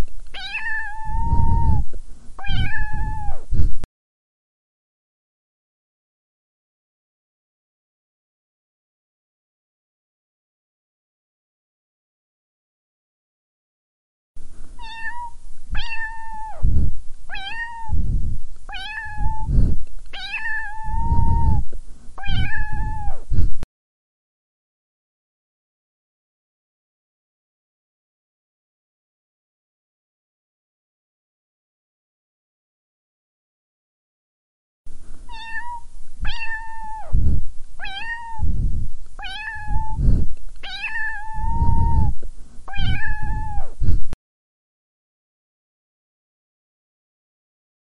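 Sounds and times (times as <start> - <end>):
cat meowing: 0.4 - 1.8, 2.4 - 3.4, 14.8 - 16.6, 17.3 - 18.0, 18.7 - 19.5, 20.2 - 21.6, 22.2 - 23.2, 35.3 - 37.2, 37.8 - 38.5, 39.2 - 40.0, 40.6 - 43.8
loud low rumbling noise: 16.4 - 17.1, 17.8 - 18.5, 36.0 - 44.1.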